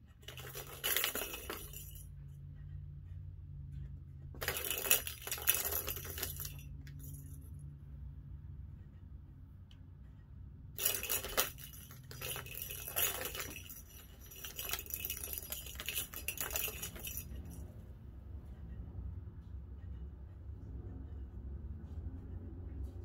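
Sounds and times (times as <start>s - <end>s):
low steady hum: 0.0s - 23.0s
plastic ball rattling in cat toy: 0.1s - 2.3s, 4.3s - 7.5s, 10.8s - 17.6s.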